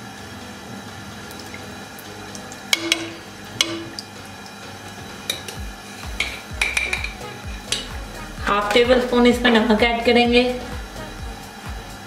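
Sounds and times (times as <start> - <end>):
water sloshing and dripping: 1.2 - 8.0
spoon tapping a pan: 2.4 - 4.1, 5.2 - 8.8.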